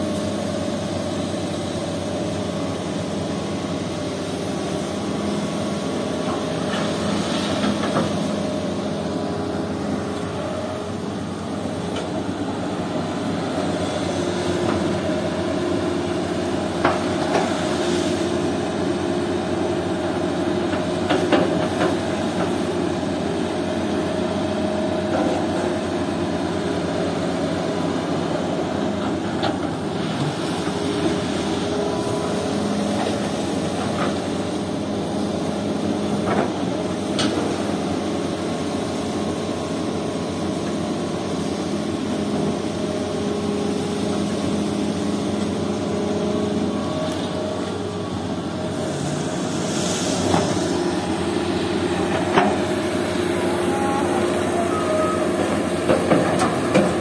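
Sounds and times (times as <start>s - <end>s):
heavy diesel engines running: 0.0s - 57.0s.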